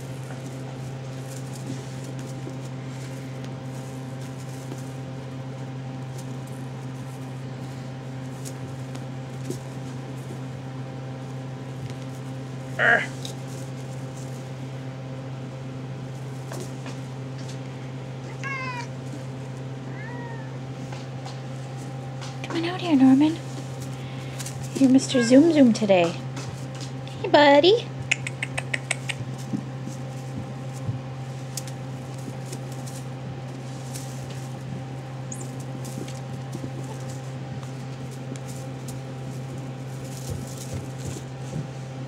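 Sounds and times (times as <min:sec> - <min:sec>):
steady low hum: 0:00.0 - 0:42.0
kittens mewing: 0:12.8 - 0:13.3, 0:18.2 - 0:19.0, 0:19.8 - 0:20.8, 0:24.6 - 0:25.8.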